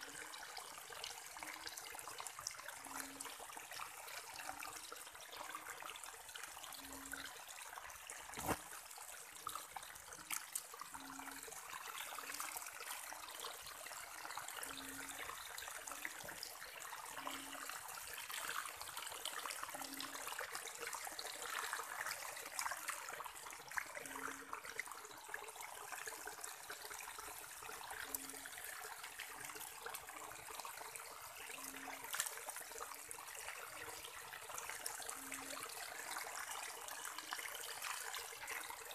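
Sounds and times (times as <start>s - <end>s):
water running through grass: 7.4s - 24.3s, 26.4s - 38.9s.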